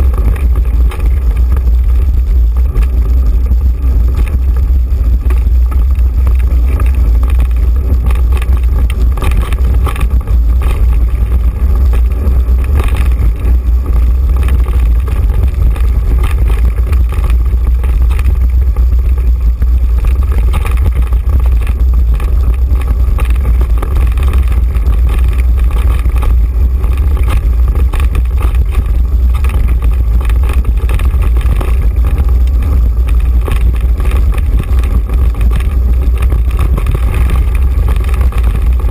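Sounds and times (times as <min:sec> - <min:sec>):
bike rattling over rocks: 0:00.0 - 0:38.9
wind rumble on microphone: 0:00.0 - 0:38.9.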